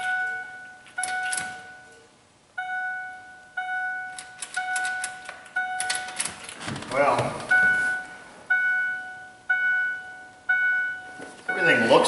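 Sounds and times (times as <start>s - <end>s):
dashboard warning chime: 0.0s - 6.2s, 7.5s - 12.0s
sharp clicks: 4.1s - 6.6s.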